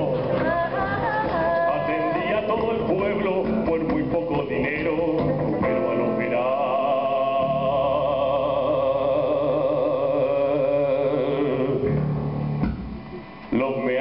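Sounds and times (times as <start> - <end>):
live band with electric guitars: 2.2 - 6.3
singer holding long vibrato note: 5.7 - 11.9.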